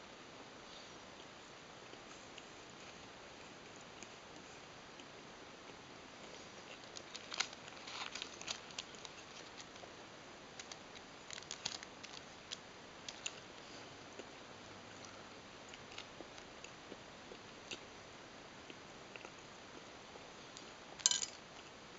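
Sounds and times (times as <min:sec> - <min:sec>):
paper wrapper crinkling: 0:06.7 - 0:09.9, 0:10.5 - 0:13.4.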